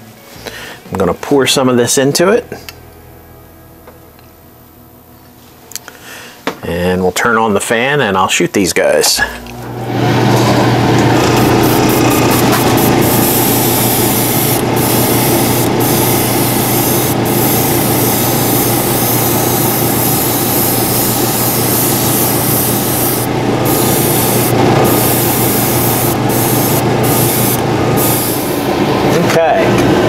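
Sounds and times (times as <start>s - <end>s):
exhaust fan humming: 0.4s - 7.6s, 8.8s - 30.0s
airbrush hissing: 11.2s - 28.6s.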